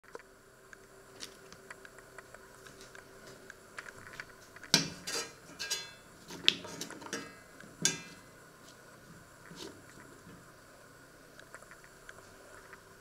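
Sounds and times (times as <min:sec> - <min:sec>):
knife scraping frying pan: 0:05.0 - 0:07.2.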